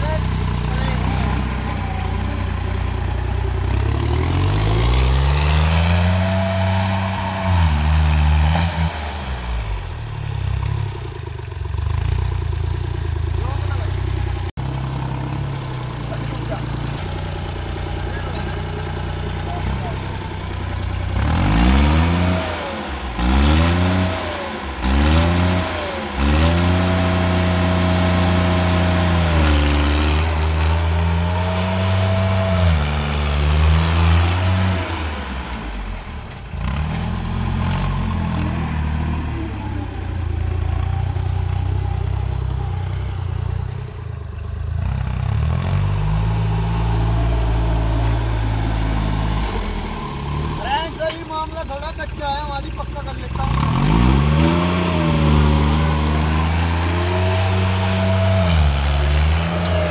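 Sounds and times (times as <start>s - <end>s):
tractor diesel engine revving: 0.0s - 59.9s.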